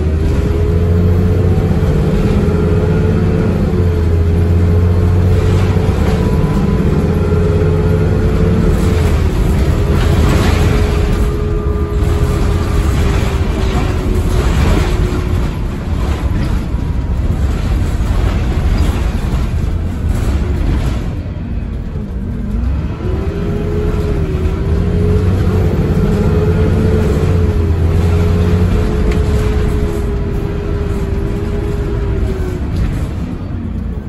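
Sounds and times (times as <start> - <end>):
bus diesel engine running: 0.0 - 34.0
steady drivetrain whine: 0.0 - 34.0.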